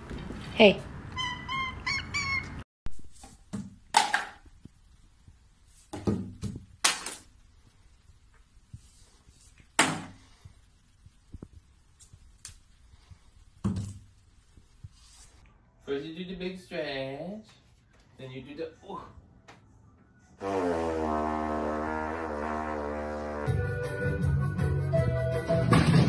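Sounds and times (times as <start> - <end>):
cat chirping: 1.2 - 2.6.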